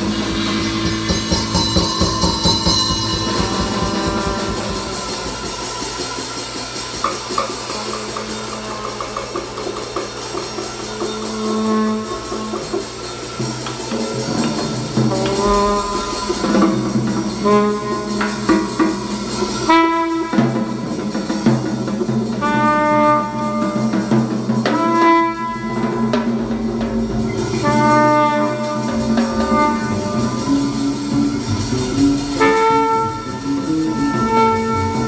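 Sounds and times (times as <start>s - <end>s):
drum kit and band backing: 0.0s - 35.0s
jazz trumpet: 0.0s - 35.0s.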